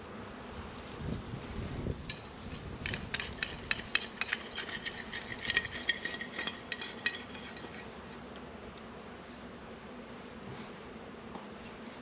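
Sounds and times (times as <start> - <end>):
tool scraping plastic dish: 2.9 - 7.9.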